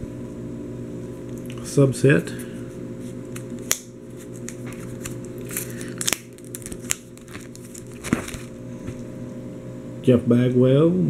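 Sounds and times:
steady low hum: 0:00.0 - 0:11.0
plastic pages crinkling: 0:03.3 - 0:09.0.

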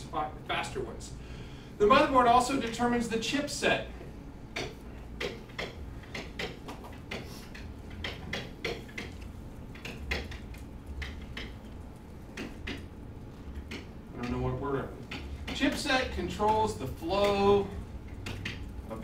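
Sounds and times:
low steady hum: 0:00.0 - 0:19.0
stylus tapping and scraping: 0:04.5 - 0:14.4.

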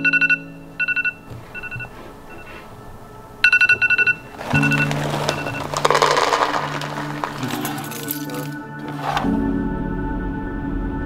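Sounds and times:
electronic alarm beeping: 0:00.0 - 0:02.6, 0:03.4 - 0:05.7
music: 0:00.0 - 0:11.0
dry kibble poured into bowl: 0:04.3 - 0:09.3.

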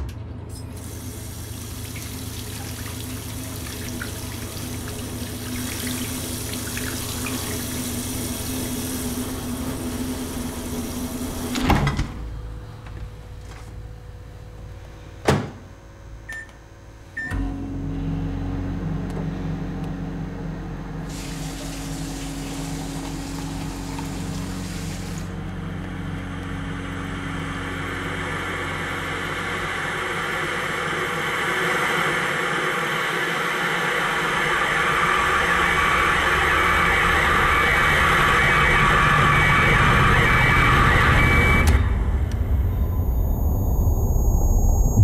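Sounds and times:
microwave humming: 0:00.0 - 0:45.0
hiss: 0:21.1 - 0:22.9.

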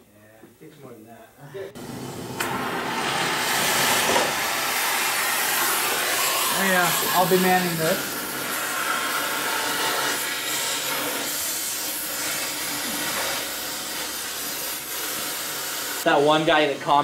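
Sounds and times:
cutting torch hissing: 0:01.4 - 0:17.0.

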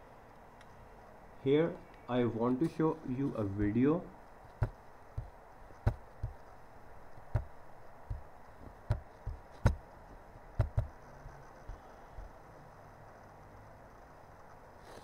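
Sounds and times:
faint steady hiss: 0:00.0 - 0:15.0
computer mouse clicking: 0:10.6 - 0:11.8.

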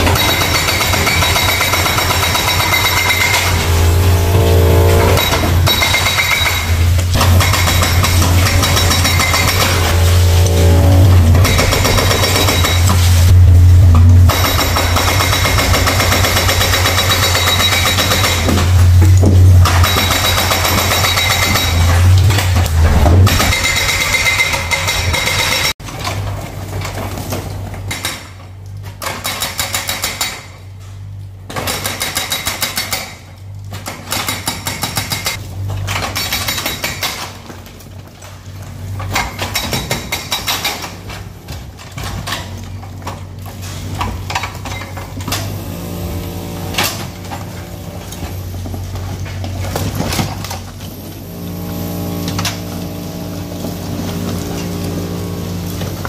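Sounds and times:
diesel engine running: 0:00.0 - 0:25.8, 0:45.2 - 0:49.9, 0:50.7 - 0:56.0
hydraulic breaker hammering: 0:00.0 - 0:25.8.

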